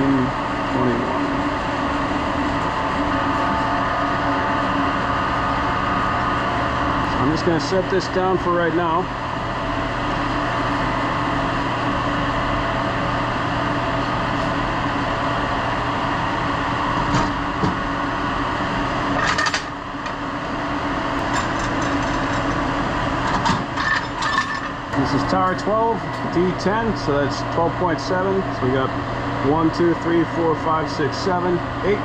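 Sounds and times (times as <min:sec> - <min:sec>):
industrial machinery hum: 0:00.0 - 0:32.0.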